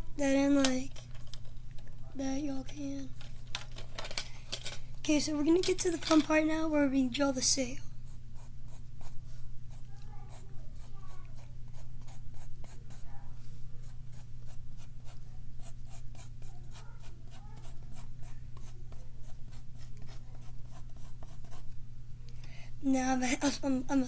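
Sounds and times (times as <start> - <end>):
steady low hum: 0.0 - 24.0
pencil scratching on paper: 8.1 - 13.1, 13.8 - 21.7.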